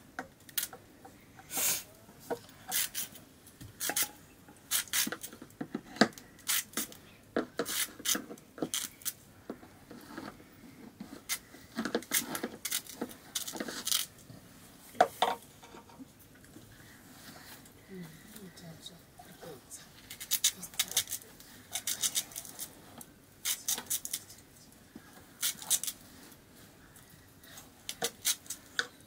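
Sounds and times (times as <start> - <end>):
knife scraping fruit peel: 2.7 - 3.2, 6.4 - 6.9, 7.6 - 9.1, 20.1 - 22.7.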